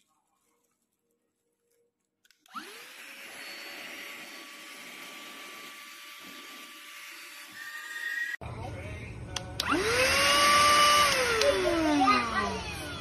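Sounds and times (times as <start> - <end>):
vacuum cleaner motor whine: 2.5 - 8.4, 9.6 - 13.0
vacuum cleaner switch click: 9.6 - 9.8.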